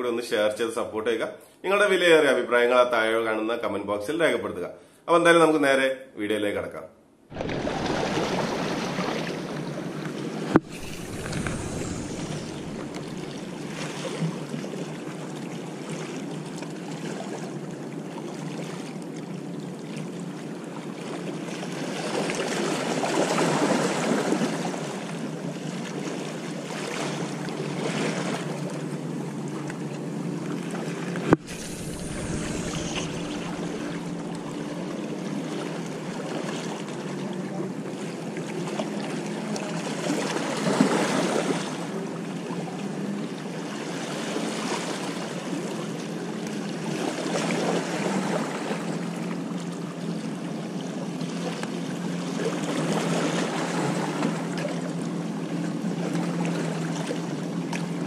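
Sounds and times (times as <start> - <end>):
sea water washing against rocks: 7.3 - 14.9, 31.4 - 34.9
faint low hum: 10.6 - 14.4, 31.3 - 35.3
wind on microphone: 10.6 - 14.4, 31.4 - 34.9.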